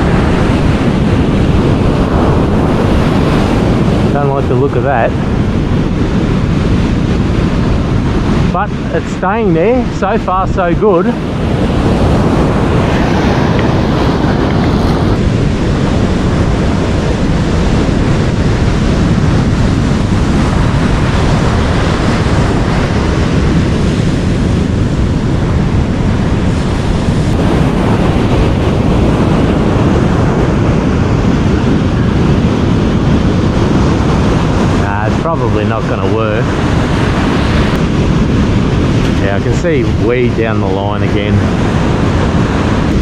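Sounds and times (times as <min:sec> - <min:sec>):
ocean surf breaking: 0:00.0 - 0:43.0
wind buffeting microphone: 0:00.0 - 0:43.0.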